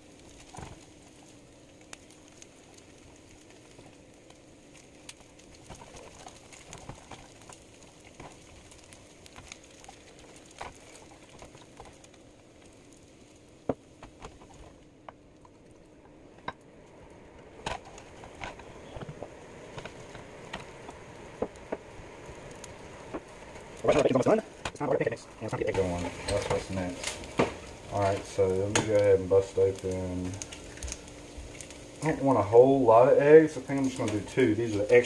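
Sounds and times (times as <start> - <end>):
bacon sizzling in a pan: 0.0 - 35.0.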